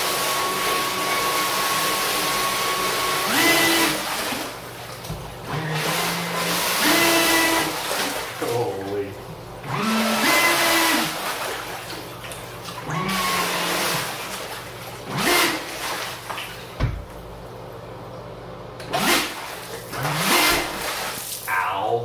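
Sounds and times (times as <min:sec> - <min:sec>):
churning water rushing: 0:03.3 - 0:16.9.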